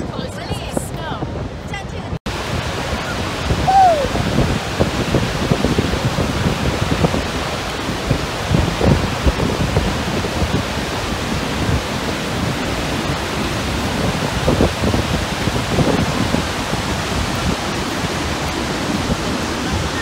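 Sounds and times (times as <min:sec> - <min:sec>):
waterfall rushing: 0:02.3 - 0:20.0.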